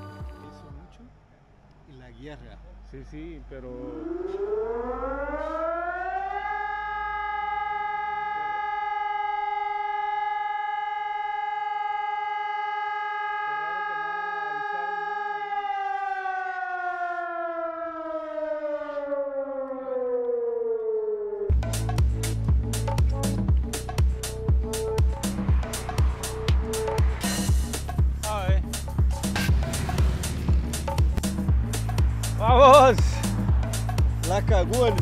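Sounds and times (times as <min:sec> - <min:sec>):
warning siren winding: 0:03.8 - 0:21.5.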